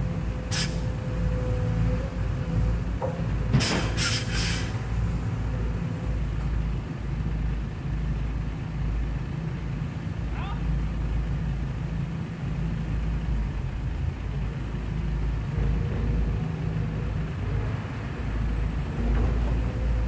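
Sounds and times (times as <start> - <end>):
excavator clanking: 0.0 - 7.5, 14.0 - 20.0
distant diesel engines rumbling: 0.0 - 20.0.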